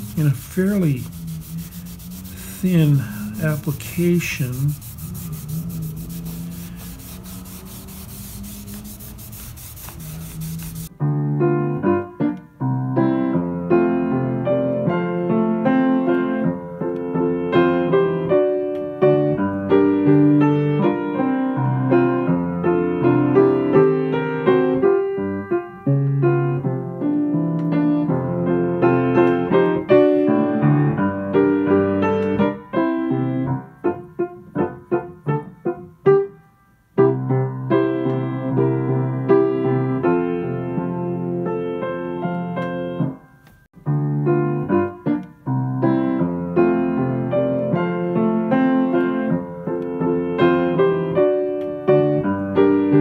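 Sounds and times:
rag rubbing wood: 0:00.0 - 0:10.9
background piano music: 0:00.0 - 0:53.0.

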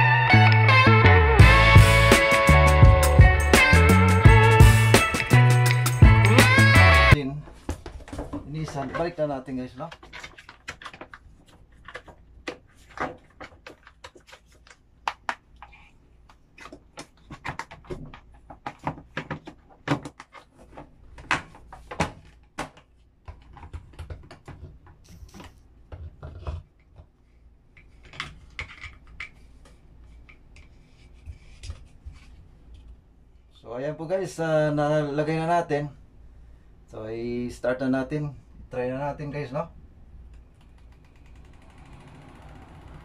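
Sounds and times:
plastic parts clicking and knocking: 0:09.8 - 0:27.2, 0:27.8 - 0:30.7.

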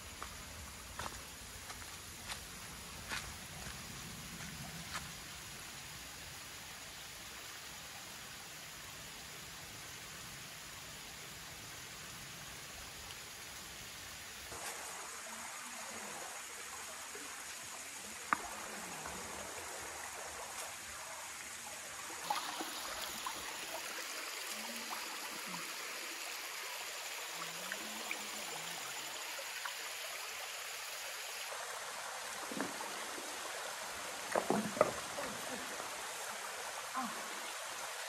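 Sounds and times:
waterfall and stream rushing: 0:00.0 - 0:38.0.

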